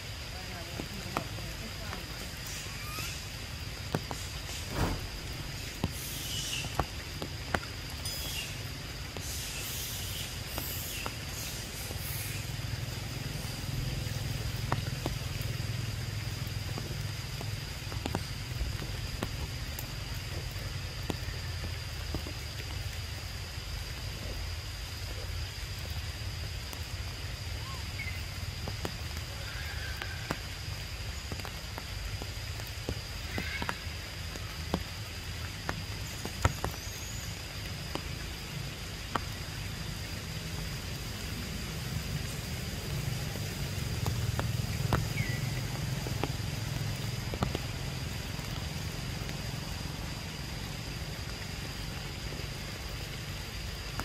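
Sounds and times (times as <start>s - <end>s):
raindrops ticking: 0.0s - 54.0s
hissy bursts: 1.0s - 7.2s, 8.0s - 13.0s.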